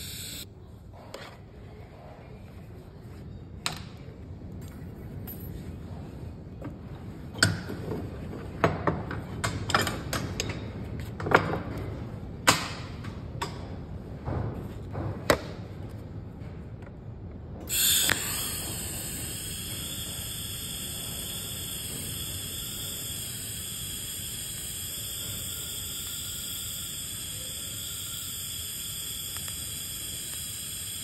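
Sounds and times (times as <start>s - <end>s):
welding arc hissing: 0.0s - 0.4s, 17.7s - 31.0s.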